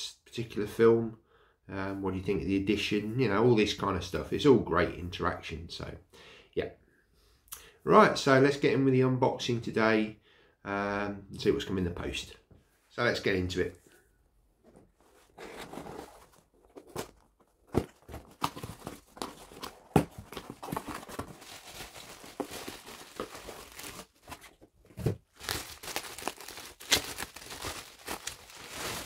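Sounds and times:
cardboard and wrapping tearing: 17.8s - 29.0s.

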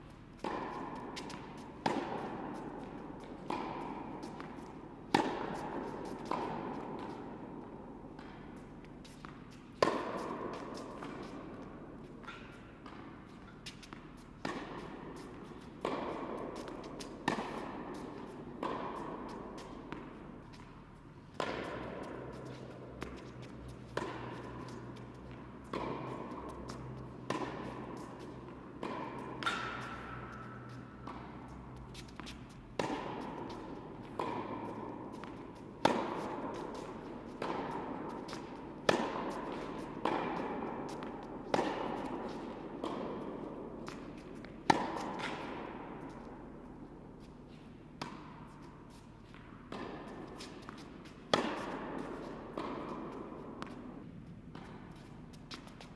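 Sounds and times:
tennis ball bouncing: 0.1s - 55.9s
racket striking tennis ball: 0.4s - 55.9s.

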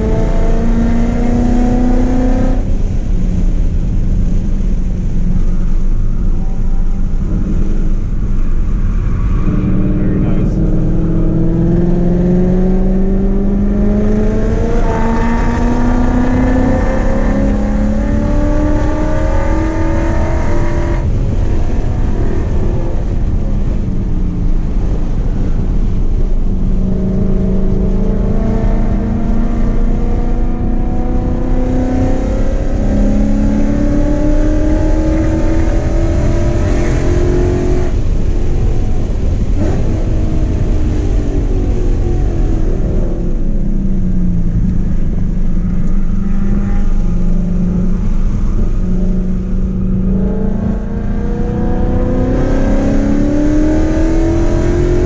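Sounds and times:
car engine accelerating: 0.0s - 55.0s
road and wind noise: 0.0s - 55.0s.

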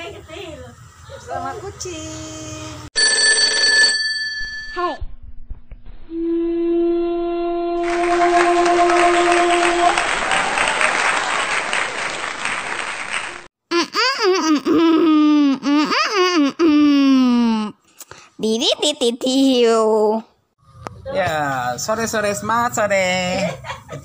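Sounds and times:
applause-like hiss: 7.8s - 13.5s
laughter: 23.4s - 24.0s.

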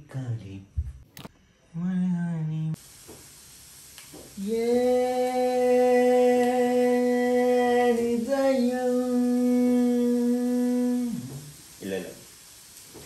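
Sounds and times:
man singing long wordless note: 4.4s - 11.4s.

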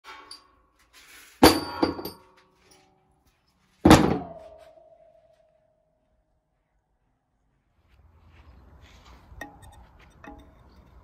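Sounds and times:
metal clunk on board with ringing: 1.4s - 2.4s, 3.9s - 5.2s.

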